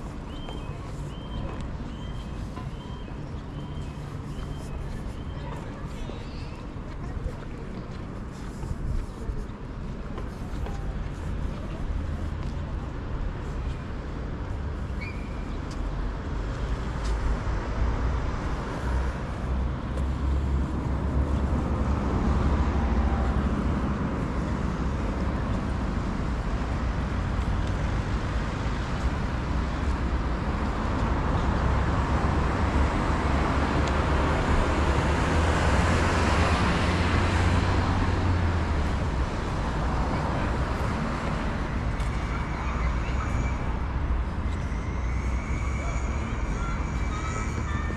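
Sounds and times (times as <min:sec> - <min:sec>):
road traffic rumble: 0:00.0 - 0:47.9.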